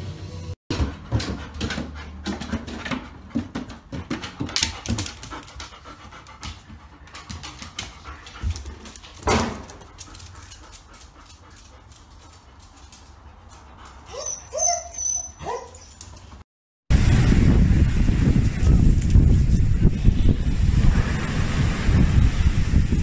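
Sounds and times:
dog panting: 0.7 - 14.6
claws clicking on floor: 3.6 - 14.1
loud burst of noise: 16.9 - 19.0.

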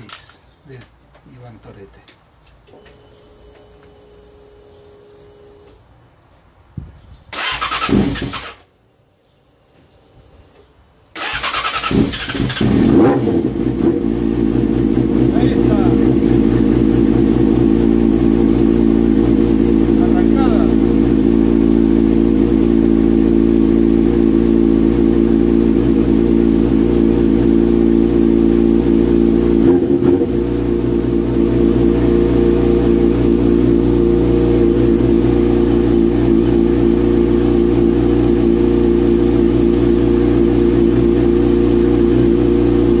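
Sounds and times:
motorcycle engine idling: 11.2 - 43.0.

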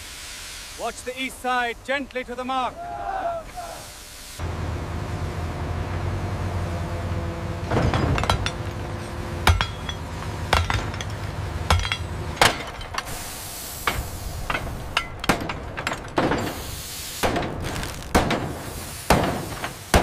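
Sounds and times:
hammers striking steel: 7.7 - 13.2, 13.8 - 17.6, 18.2 - 20.0
brief hiss: 13.1 - 14.9, 16.4 - 20.0.

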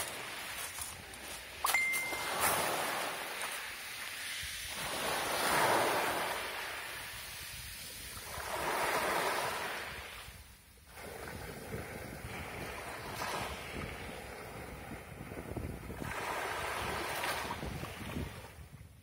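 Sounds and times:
sea waves breaking on beach: 0.0 - 18.7.

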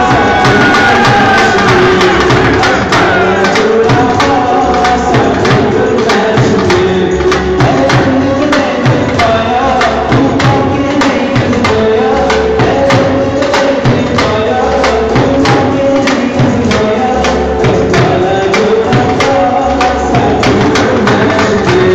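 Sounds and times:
dhol drum beating: 0.0 - 21.9.

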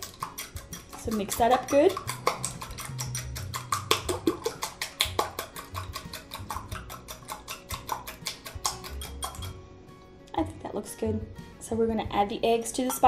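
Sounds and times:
whisk clicking against bowl: 0.0 - 9.6.

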